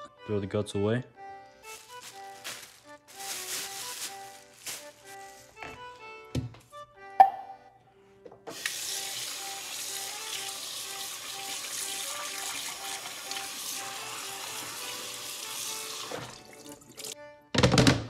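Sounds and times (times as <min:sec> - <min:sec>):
faucet running into steel sink: 0:08.5 - 0:17.2.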